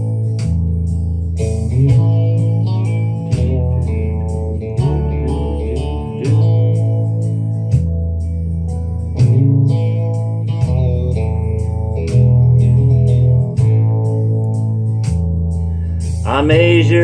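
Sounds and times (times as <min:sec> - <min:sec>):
bass notes: 0:00.0 - 0:17.0
lead guitar with bent notes: 0:00.0 - 0:17.0
steady drum beat: 0:16.0 - 0:17.0.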